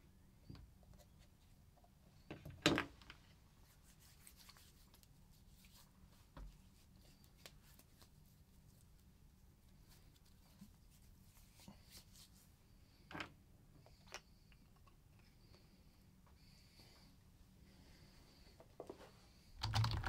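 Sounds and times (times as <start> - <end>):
hands rubbing together: 3.6 - 9.0, 9.7 - 12.5.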